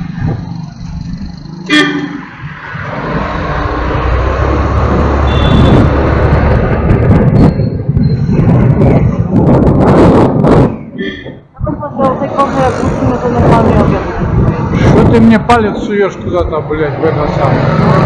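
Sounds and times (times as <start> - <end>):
vehicle driving rumble: 0.0 - 18.0
vehicle horn toot: 1.7 - 2.2, 5.2 - 5.9.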